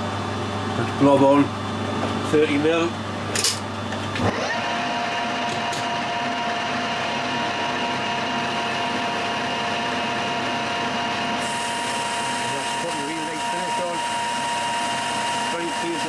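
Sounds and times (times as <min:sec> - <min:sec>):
metal lathe whining: 0:04.2 - 0:16.0.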